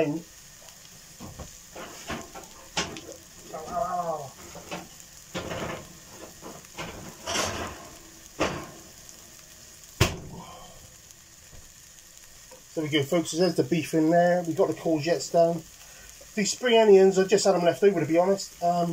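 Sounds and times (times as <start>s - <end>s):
fat popping and crackling: 0.0s - 18.9s
meat and onions sizzling: 0.0s - 18.9s
person murmuring: 3.5s - 4.4s.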